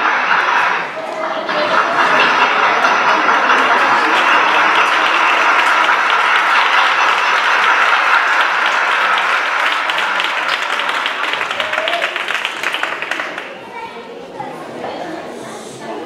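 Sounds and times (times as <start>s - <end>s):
audience applauding: 1.7s - 13.8s.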